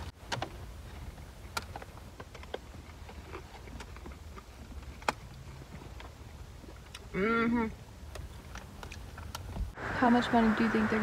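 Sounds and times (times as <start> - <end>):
people eating crisp food: 1.3 - 9.5.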